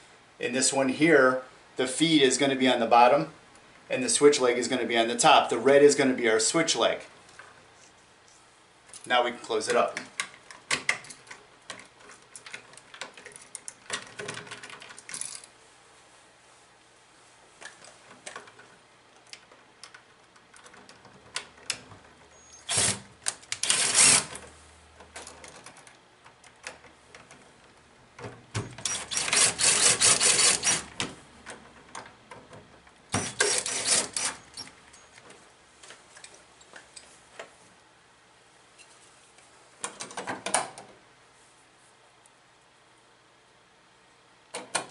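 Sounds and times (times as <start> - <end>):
switch and wires clicking and rustling: 8.9 - 15.5, 17.6 - 37.6, 44.5 - 44.9
cordless drill driving screws: 22.6 - 24.4, 28.8 - 30.9, 33.1 - 34.7.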